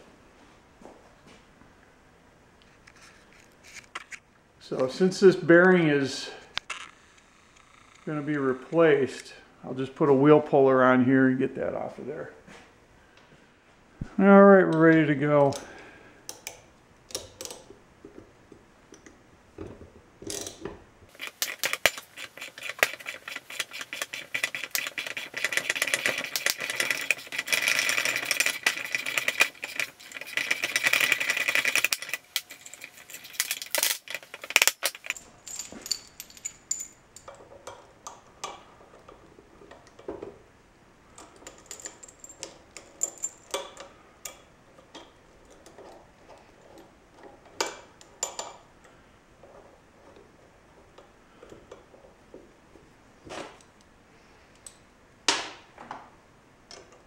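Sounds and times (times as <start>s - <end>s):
wheel puller rapid metallic clicking: 21.1s - 35.2s
metal clinks: 21.1s - 37.5s, 41.3s - 44.4s.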